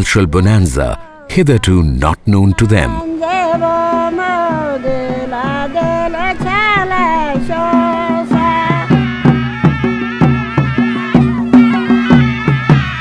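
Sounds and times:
drum beats: 2.0 - 13.0
woman singing solo: 2.7 - 13.0.

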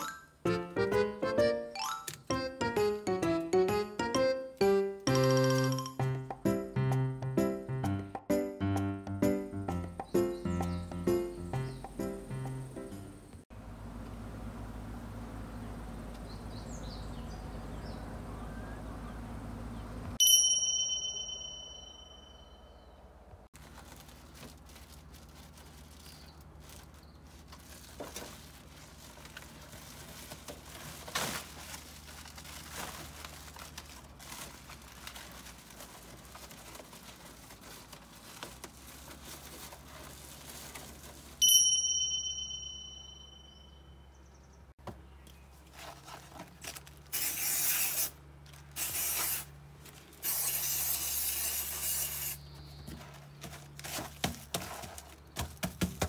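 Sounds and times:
bright ding: 20.2 - 23.0, 41.4 - 44.0
foil sheet crinkling and rustling: 23.6 - 41.4, 45.6 - 47.3, 51.8 - 55.8.

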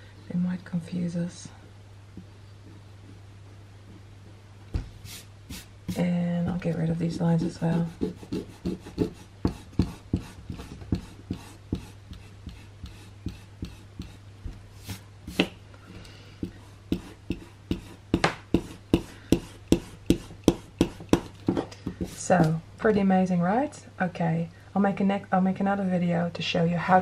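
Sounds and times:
eraser scrubbing on paper: 7.1 - 14.2, 14.8 - 15.4.

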